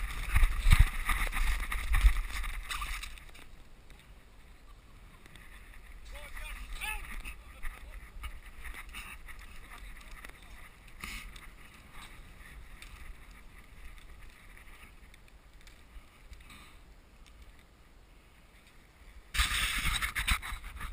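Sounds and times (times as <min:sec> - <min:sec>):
faint wind rumble on microphone: 0:00.0 - 0:03.4.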